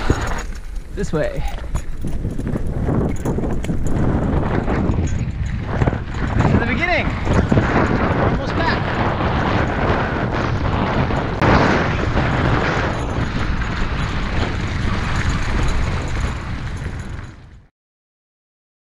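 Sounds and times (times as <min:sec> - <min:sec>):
bike tyres rumbling over gravel: 0:00.0 - 0:17.7
wind buffeting microphone: 0:00.0 - 0:17.7.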